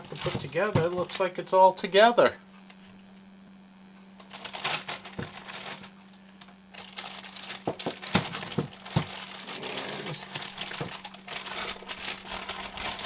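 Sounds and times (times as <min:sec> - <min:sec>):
plastic bag crinkling: 0:00.0 - 0:01.2, 0:04.2 - 0:13.0.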